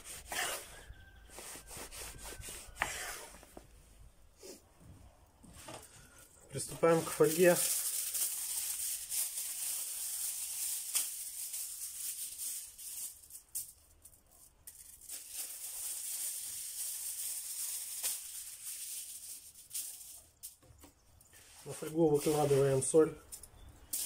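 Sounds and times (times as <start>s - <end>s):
kitchen foil crinkling: 5.8s - 20.7s, 21.3s - 24.0s.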